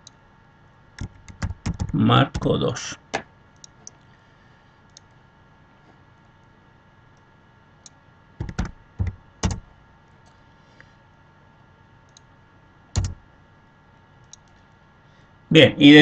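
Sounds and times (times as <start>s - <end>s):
keyboard and mouse clicks: 1.0s - 2.5s, 7.8s - 9.6s, 12.1s - 12.3s, 13.0s - 13.2s, 14.2s - 14.7s.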